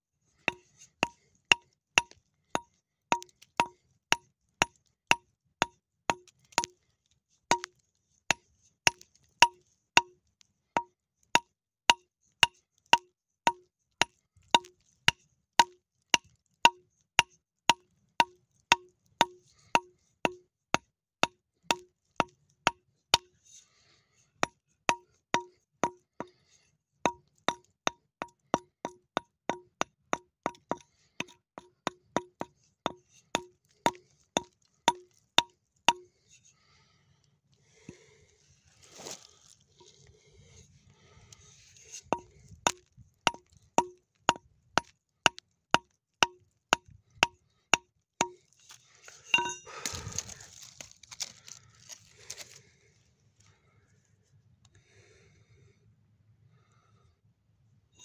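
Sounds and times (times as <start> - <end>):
hammer tapping rock: 0.5 - 6.8, 7.5 - 10.2, 10.8 - 23.3, 24.4 - 26.4, 27.1 - 36.1, 42.0 - 48.4, 49.4 - 50.3.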